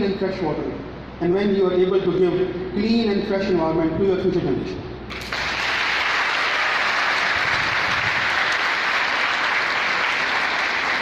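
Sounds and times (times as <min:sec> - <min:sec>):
audience clapping: 0:05.1 - 0:11.0.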